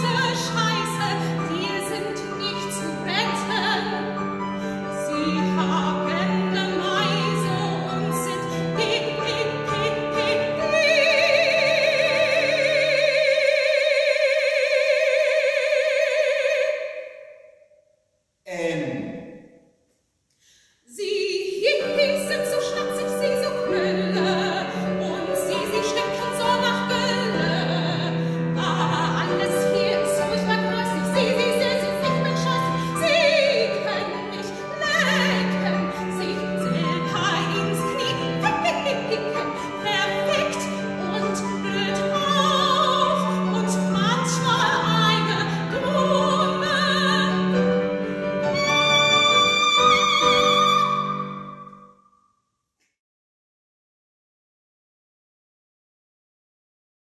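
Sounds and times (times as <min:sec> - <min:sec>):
soprano singing operatic aria: 0:00.0 - 0:17.2, 0:20.9 - 0:51.8.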